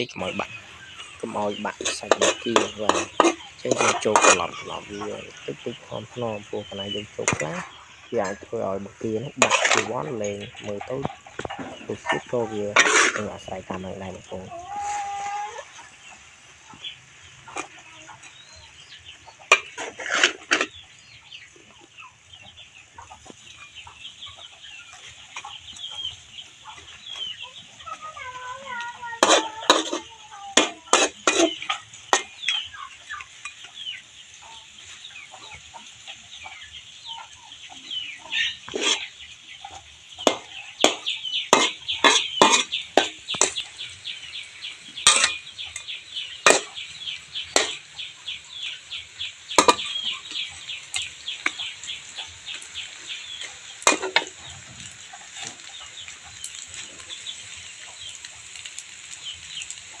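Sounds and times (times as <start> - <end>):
steady frying hiss: 0.0 - 60.0
metal spatula scraping a wok: 0.8 - 5.9, 6.8 - 8.5, 9.4 - 15.0, 19.5 - 20.8, 28.9 - 33.7, 38.5 - 39.2, 39.8 - 55.7.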